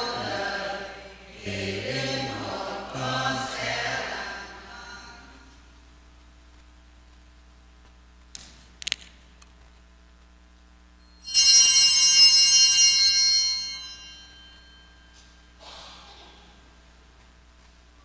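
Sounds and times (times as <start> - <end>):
small bell ringing: 11.0 - 15.5.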